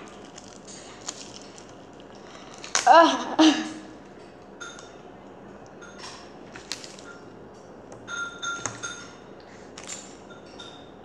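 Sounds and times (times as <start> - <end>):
tableware clinking on table: 8.1 - 9.3.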